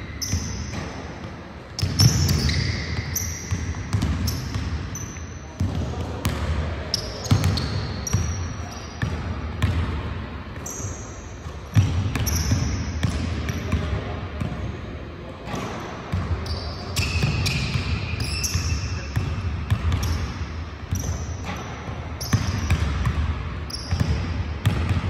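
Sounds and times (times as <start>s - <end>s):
sneaker squeaks: 0.0s - 9.8s, 10.6s - 13.8s, 15.5s - 24.9s
basketballs bouncing on hardwood: 3.5s - 4.6s, 23.9s - 25.0s.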